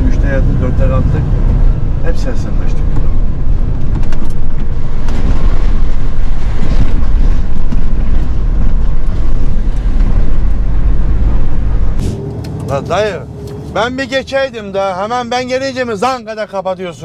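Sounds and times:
truck engine and road rumble: 0.0s - 17.0s
wind on microphone: 2.8s - 12.1s.

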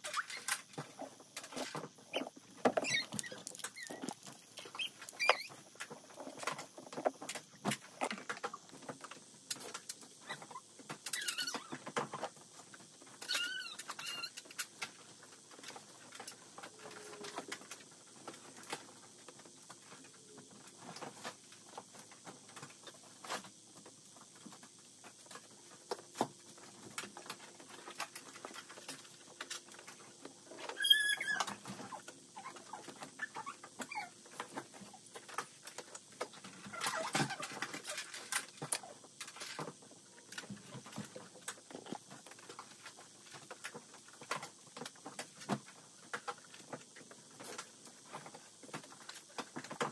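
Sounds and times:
high squeak: 2.1s - 4.0s, 4.6s - 5.6s, 30.7s - 31.6s.

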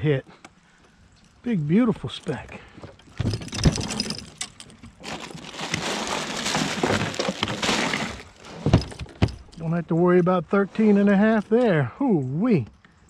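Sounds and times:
plastic bag crinkling: 5.0s - 9.1s.

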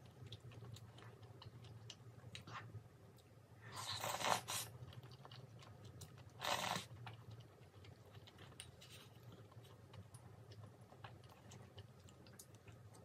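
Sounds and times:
wet chewing: 0.0s - 13.0s
slurping noodles: 3.7s - 4.8s, 6.4s - 6.9s.

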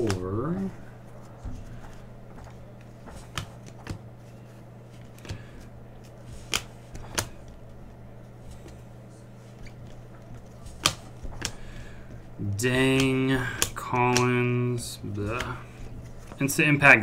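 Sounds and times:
cards snapping off stack: 0.0s - 0.3s, 1.5s - 4.0s, 5.0s - 7.6s, 10.6s - 14.4s, 15.2s - 15.6s
steady low hum: 0.0s - 17.0s.

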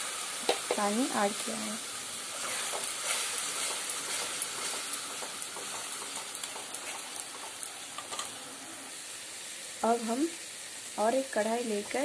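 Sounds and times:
curry sizzling in pan: 0.0s - 12.0s
metal spatula scraping pan: 2.4s - 6.9s.

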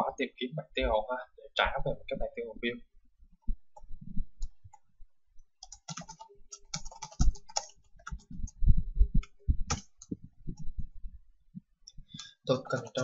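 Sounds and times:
computer keyboard typing: 5.6s - 8.6s, 9.2s - 10.7s, 12.2s - 13.0s.

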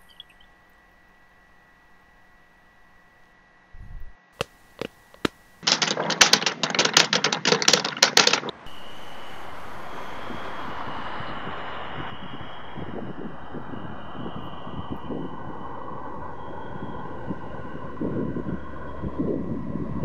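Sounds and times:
fast keyboard typing: 5.6s - 8.6s.

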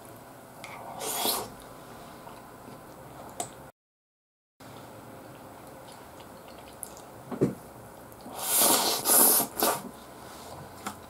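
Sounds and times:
hissing mouth noises: 0.9s - 1.6s, 8.3s - 9.9s.

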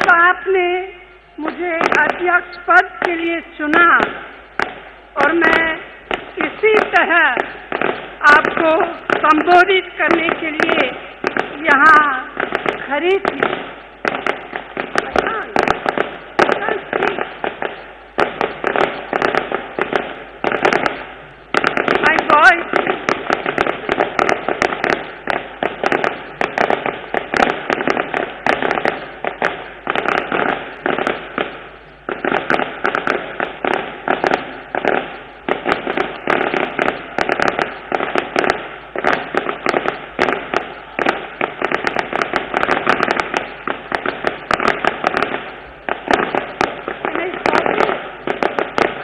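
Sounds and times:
firecrackers banging: 0.0s - 49.0s.

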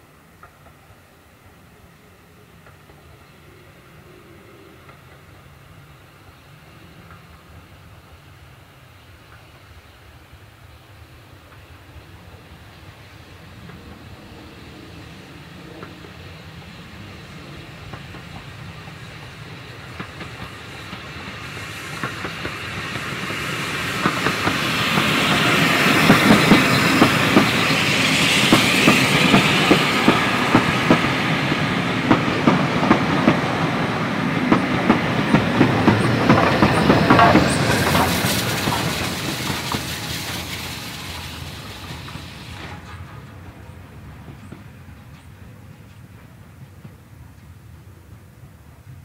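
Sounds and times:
steam hiss: 0.0s - 49.0s
steam train passing: 0.0s - 49.0s
wheels clicking over rail joints: 19.8s - 47.6s.

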